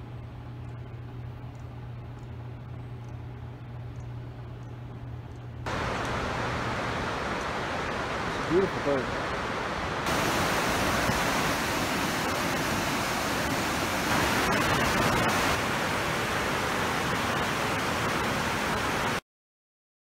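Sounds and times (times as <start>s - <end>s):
river rapids rushing: 5.7s - 19.2s.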